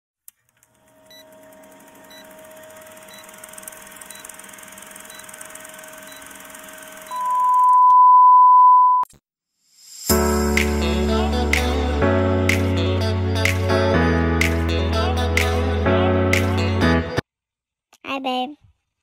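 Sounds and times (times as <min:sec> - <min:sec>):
loud steady beep: 0:07.1 - 0:09.0
music: 0:10.1 - 0:17.2.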